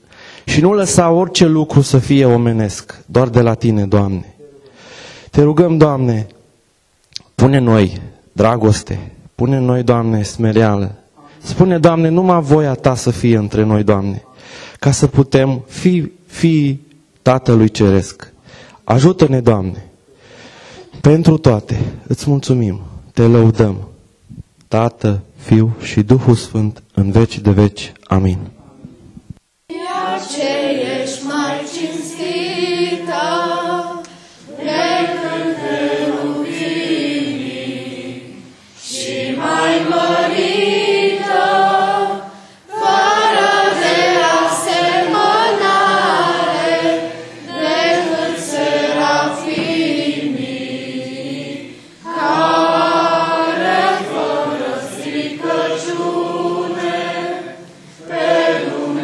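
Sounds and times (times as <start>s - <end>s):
group singing a hymn: 29.7s - 59.0s.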